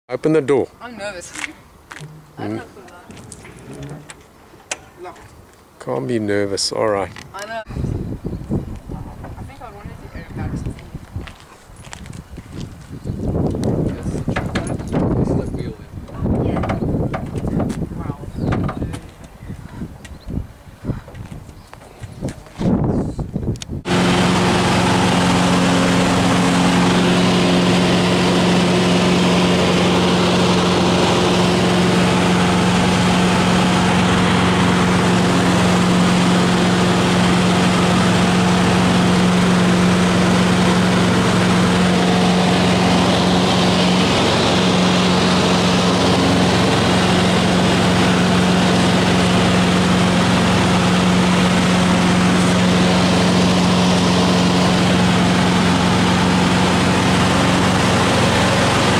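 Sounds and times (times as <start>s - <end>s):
airplane engine and propeller droning: 23.8s - 58.9s.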